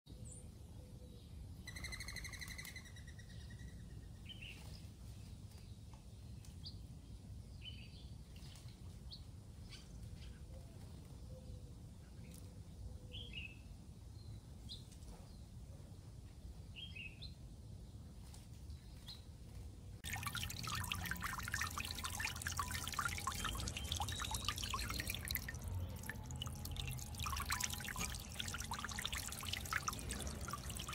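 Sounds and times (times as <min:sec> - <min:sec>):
bird chirps: 0:01.6 - 0:03.8
water splashing and trickling: 0:20.0 - 0:30.9.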